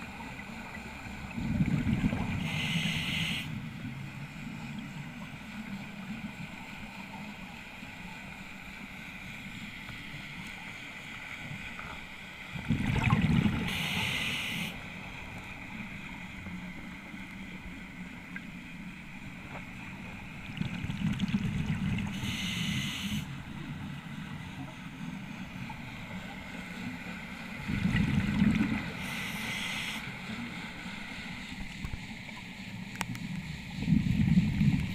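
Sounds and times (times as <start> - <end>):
exhaled bubbles rushing underwater: 0.0 - 2.8, 12.5 - 14.2, 20.2 - 22.4, 27.6 - 29.2
diver breathing through regulator: 2.4 - 3.6, 13.6 - 14.8, 22.1 - 23.3, 29.0 - 30.2.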